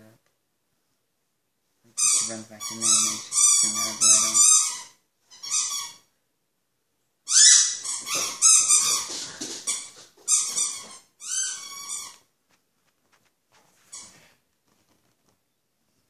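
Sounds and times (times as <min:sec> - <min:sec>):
animal high-pitched cries: 0:02.0 - 0:06.1, 0:07.3 - 0:12.2.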